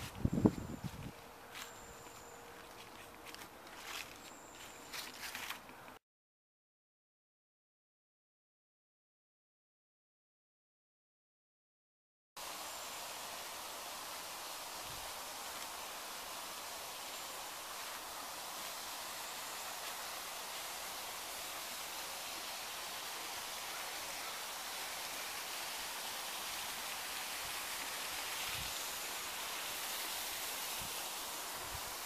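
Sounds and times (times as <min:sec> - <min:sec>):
stream rushing: 0:12.4 - 0:32.0.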